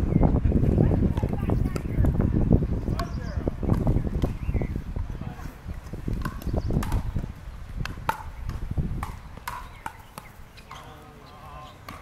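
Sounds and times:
paddles striking plastic ball: 0:06.1 - 0:07.2, 0:07.8 - 0:10.8.

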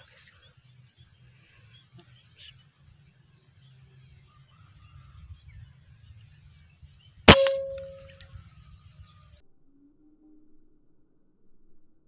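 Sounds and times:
air rifle shot with metallic ring: 0:07.3 - 0:08.2.

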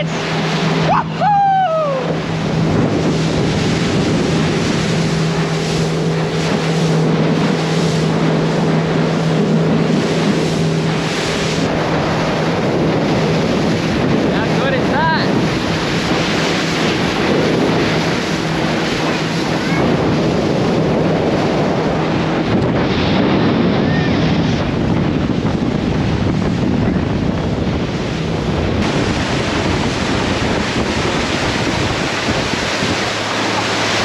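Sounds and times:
boat engine drone: 0:00.0 - 0:34.0
water rushing past boat hull: 0:00.0 - 0:34.0
wind buffeting microphone: 0:00.0 - 0:34.0.

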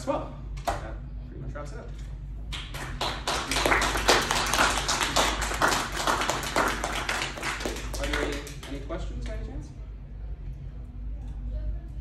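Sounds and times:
small audience applauding: 0:02.5 - 0:08.9.

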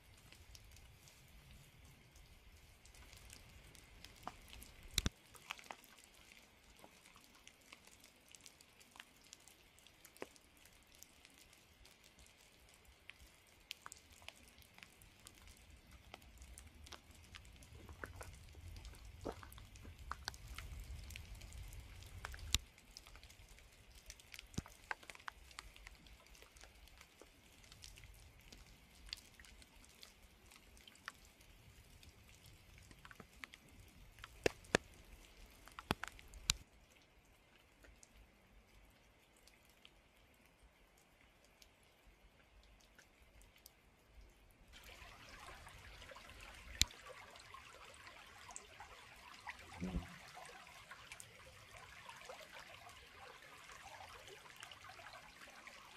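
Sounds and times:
raindrops dripping: 0:00.0 - 0:55.9
soft rain hiss: 0:00.0 - 0:55.9.

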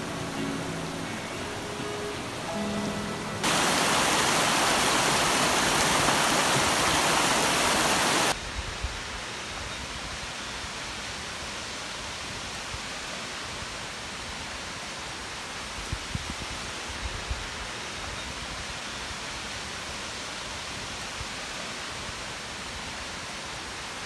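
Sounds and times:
stream rushing over rocks: 0:00.0 - 0:08.4
distant waterfall rushing: 0:00.0 - 0:24.0.

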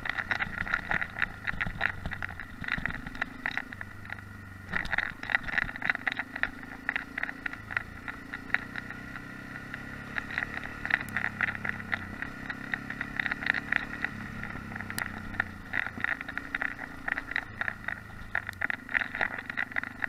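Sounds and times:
dense rattle of sharp clicks: 0:00.0 - 0:09.0, 0:09.7 - 0:20.0
motorcycle engine running: 0:00.0 - 0:20.0.

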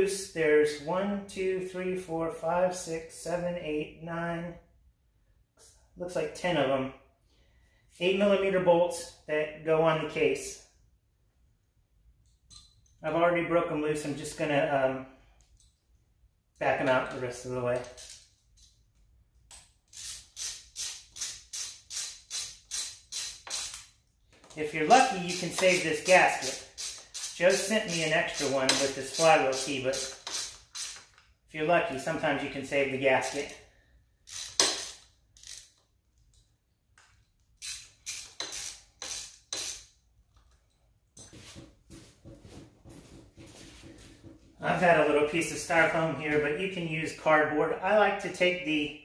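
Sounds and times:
socket ratchet clicking: 0:17.8 - 0:18.8, 0:19.4 - 0:24.0, 0:26.4 - 0:31.2, 0:34.2 - 0:36.5, 0:37.6 - 0:39.9.

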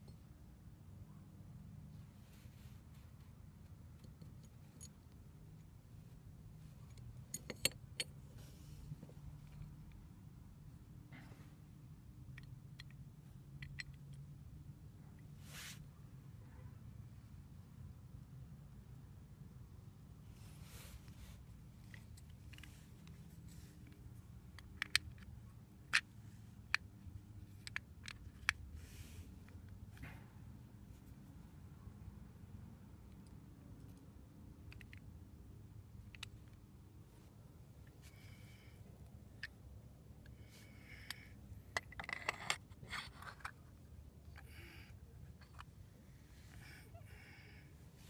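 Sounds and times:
metal clicks and clinks: 0:06.9 - 0:08.1
metal clicks and scrapes: 0:41.0 - 0:43.8.

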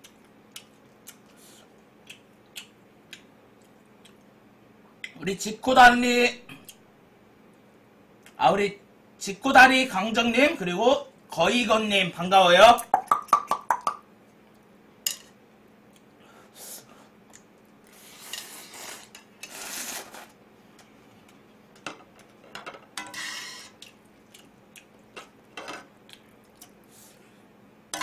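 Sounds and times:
slurping noodles: 0:17.9 - 0:20.4.

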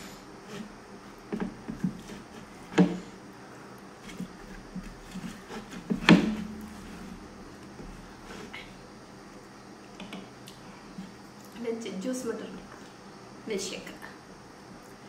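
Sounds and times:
louder knocks: 0:05.9 - 0:07.0.

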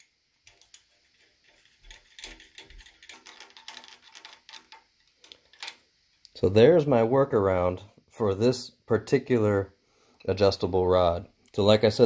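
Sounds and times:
small metal clicks and ticks: 0:00.0 - 0:06.4.

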